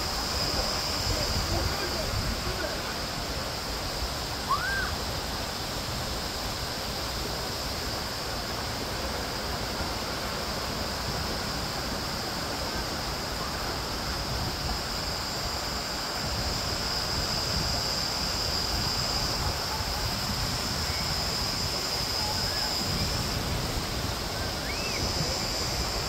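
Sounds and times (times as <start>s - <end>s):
short rising and falling chirp: 24.4s - 25.2s.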